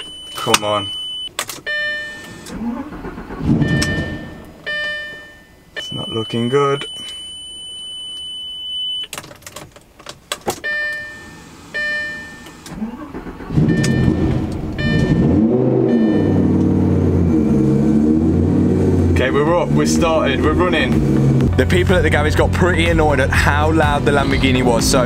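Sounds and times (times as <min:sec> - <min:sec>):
short beeps: 0:00.0 - 0:02.4, 0:03.6 - 0:09.1, 0:10.6 - 0:12.6, 0:13.7 - 0:16.6
car engine starting and revving: 0:01.6 - 0:04.9, 0:11.1 - 0:25.0
held electronic tone: 0:03.6 - 0:09.0, 0:13.7 - 0:16.6.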